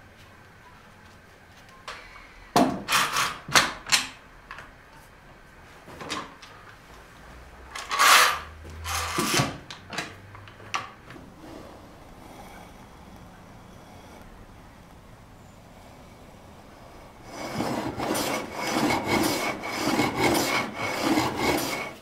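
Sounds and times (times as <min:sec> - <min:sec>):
clamp scraping on wood: 0:07.9 - 0:09.6, 0:17.2 - 0:22.0.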